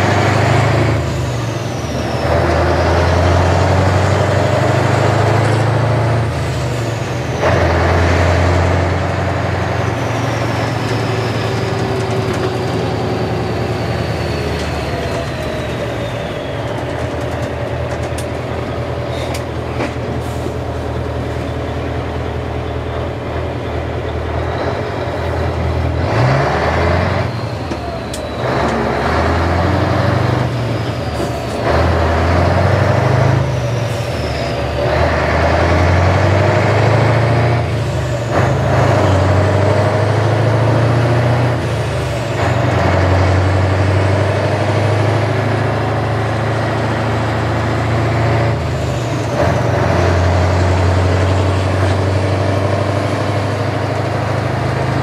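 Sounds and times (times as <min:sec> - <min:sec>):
truck engine droning: 0:00.0 - 0:55.0
faint high whistle: 0:13.3 - 0:17.2.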